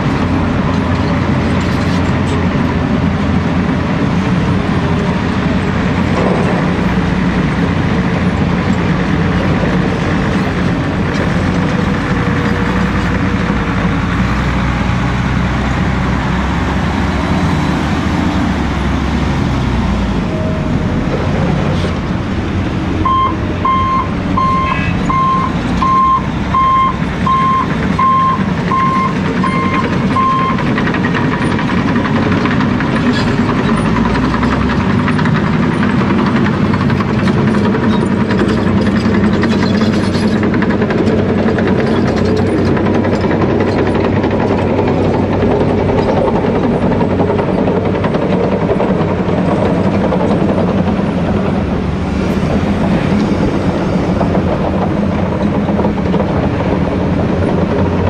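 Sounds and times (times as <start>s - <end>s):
diesel engines running: 0.0s - 58.0s
reversing alarm beeping: 23.0s - 30.6s.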